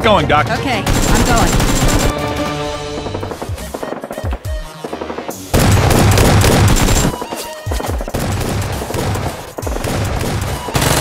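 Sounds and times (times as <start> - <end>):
background music: 0.0 - 11.0
automatic gunfire: 0.9 - 2.1, 5.0 - 7.2, 8.0 - 11.0.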